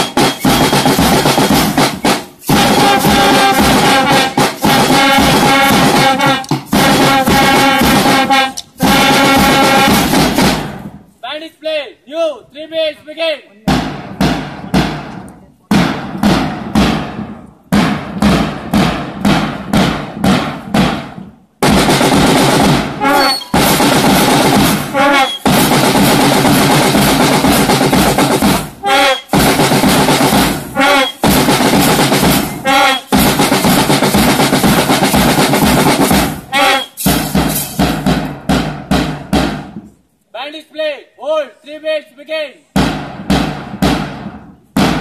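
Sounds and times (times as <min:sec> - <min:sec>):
drum roll: 0:00.0 - 0:11.0, 0:13.7 - 0:40.0, 0:42.8 - 0:45.0
drum beats: 0:00.0 - 0:11.2, 0:13.6 - 0:40.1, 0:42.7 - 0:45.0
bugle phrases: 0:11.2 - 0:13.8, 0:40.3 - 0:42.7.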